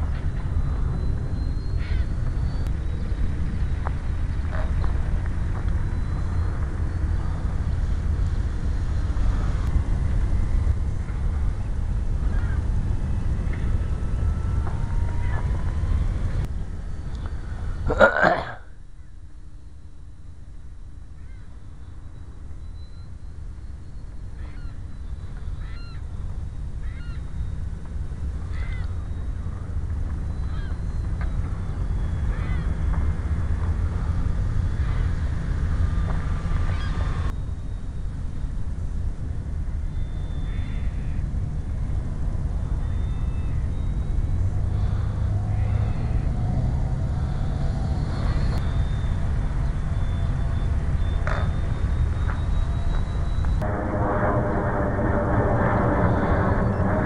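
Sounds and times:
wind noise on microphone: 0.0 - 18.0, 20.0 - 57.0
bird calling: 0.9 - 3.2, 24.4 - 26.1, 26.8 - 27.4, 28.5 - 29.4, 30.3 - 32.8.

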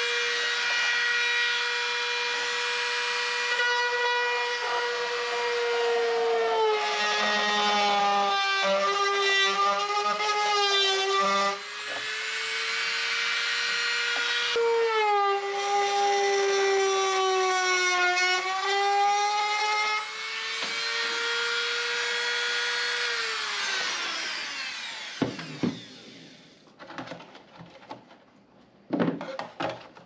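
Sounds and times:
rotary tool whining: 18.4 - 26.6.

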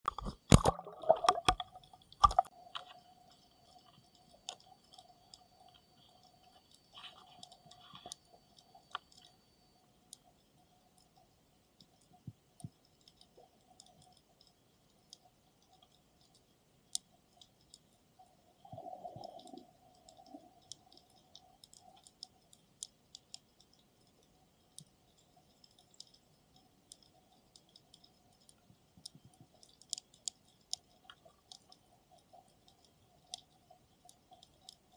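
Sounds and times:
sharp underwater clicks: 0.0 - 9.4, 10.1 - 34.9
faint underwater hum: 0.1 - 34.9
splash into water: 0.2 - 2.5.

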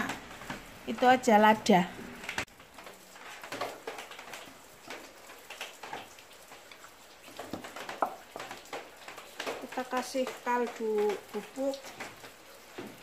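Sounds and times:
rain falling: 0.0 - 13.0
tap running into a sink: 7.3 - 8.9.

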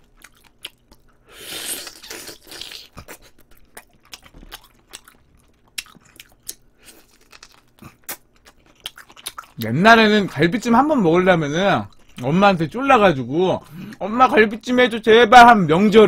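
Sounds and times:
man chewing food: 0.0 - 10.8, 11.6 - 12.4.

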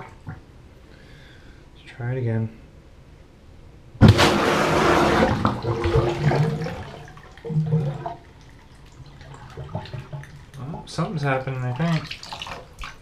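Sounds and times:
air burst into drain: 4.0 - 8.2
water churning and gurgling: 4.0 - 13.0.

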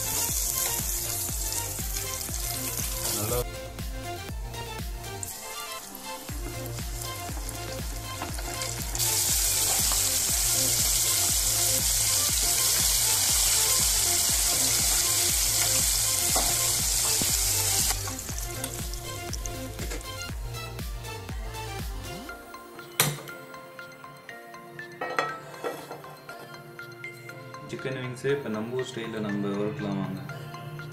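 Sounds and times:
background music with steady beat: 0.0 - 30.9
chicken deep-frying in oil: 7.4 - 18.5.

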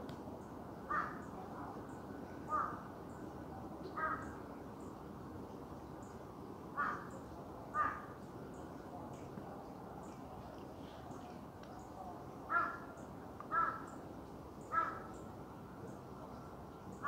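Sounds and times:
steady low hiss: 0.0 - 17.0
harsh crow-like caws: 0.9 - 1.2, 2.5 - 2.8, 4.0 - 4.3, 6.8 - 7.1, 7.7 - 8.1, 12.5 - 12.9, 13.5 - 13.9, 14.7 - 15.1.

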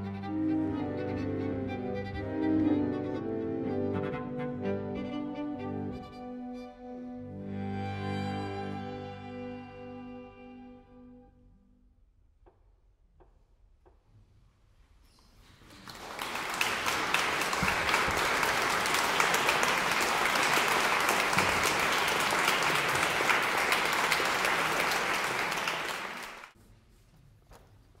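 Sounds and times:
audience applauding: 15.5 - 26.6.

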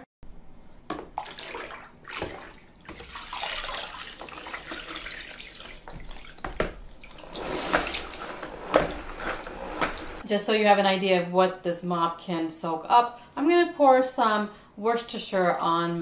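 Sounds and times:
water sloshing in mop bucket: 0.9 - 10.2
spin wringer whirring: 7.2 - 10.2.

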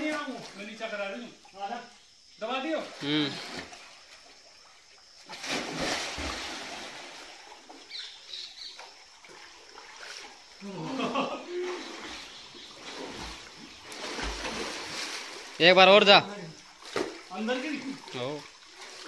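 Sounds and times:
water splashing: 0.0 - 19.0
person calling out: 3.0 - 3.4.

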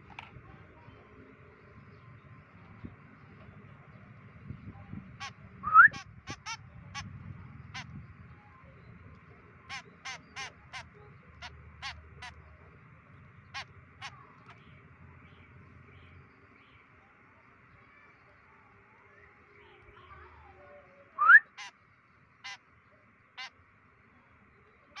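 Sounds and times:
fledgling bird harsh calls: 5.1 - 8.0, 9.5 - 12.6, 13.3 - 14.8, 21.3 - 22.7, 23.3 - 23.6.

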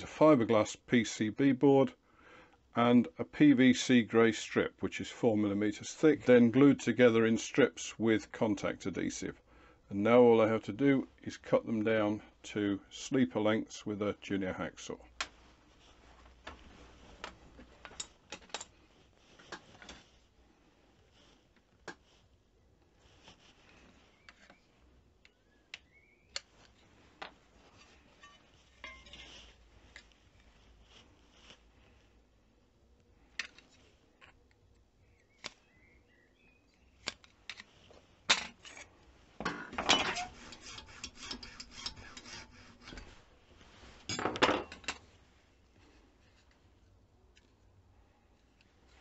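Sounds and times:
tools clinking on a workbench: 28.2 - 29.3, 39.4 - 42.1, 44.1 - 45.0
hand tool rasping: 39.5 - 43.2.

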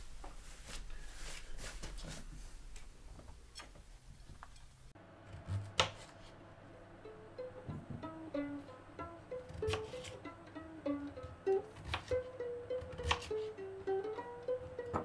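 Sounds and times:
knife cutting potato on board: 5.3 - 6.3, 9.4 - 10.2, 11.7 - 13.5
faint plucked music notes: 6.5 - 15.0.

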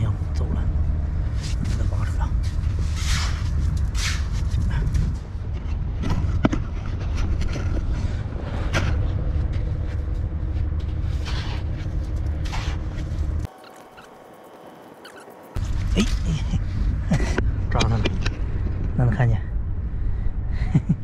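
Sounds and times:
wind on the microphone: 1.2 - 10.4
trowel scraping damp sand: 2.8 - 4.5.

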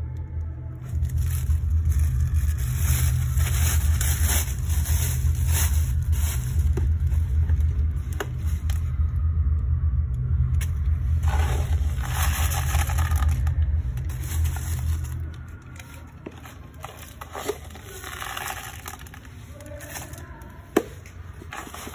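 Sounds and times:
steady low rumble: 0.0 - 21.9
plastic bin bag rustling: 0.9 - 8.7, 11.2 - 20.5, 21.4 - 21.9
scoop scraping through cat litter: 2.6 - 7.3, 11.2 - 13.4, 16.2 - 20.2, 21.4 - 21.9.

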